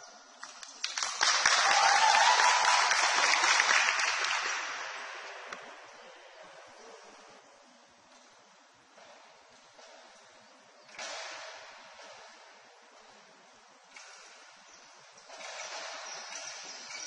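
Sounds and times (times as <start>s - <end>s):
group applauding: 0.4s - 6.0s
people cheering: 0.8s - 6.4s.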